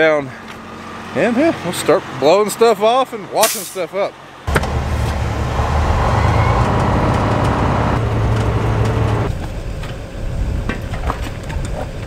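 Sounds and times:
truck engine running: 4.2 - 10.3.

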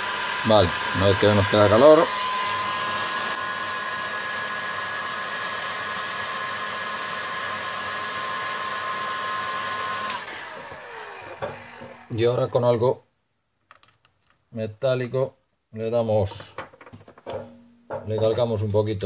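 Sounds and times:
heat gun blowing with fan whine: 0.0 - 12.6.

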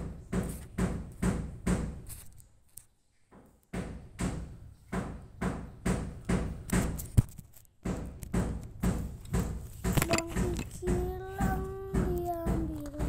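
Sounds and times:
knocking thumps: 0.0 - 2.1, 3.3 - 13.0.

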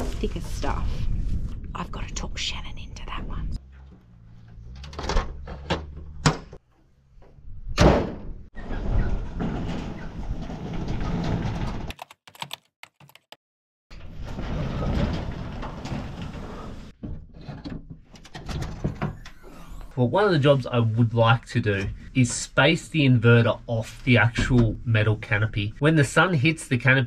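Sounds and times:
loud thump: 7.7 - 8.5.

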